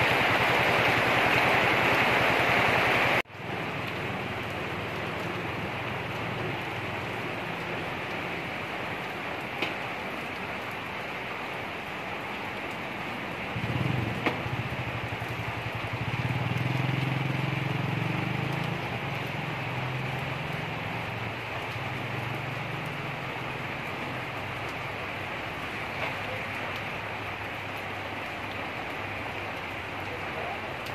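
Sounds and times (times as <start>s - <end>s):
rain on wet pavement: 0.0s - 30.9s
drip-like ticks: 18.3s - 19.4s.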